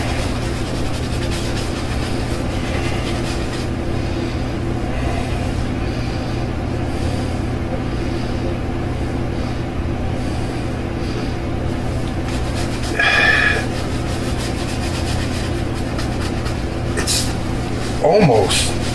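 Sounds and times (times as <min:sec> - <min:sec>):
shaving brush scrubbing: 0:00.0 - 0:05.5, 0:11.9 - 0:18.9
low mechanical hum: 0:00.0 - 0:18.9.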